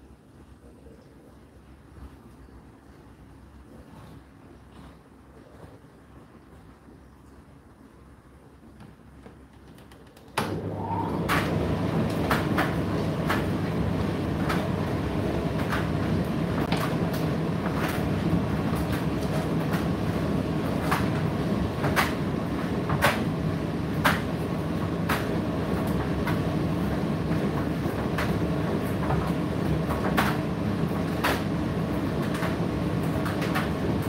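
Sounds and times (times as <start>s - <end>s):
tumble dryer hum and rumble: 10.4s - 34.0s.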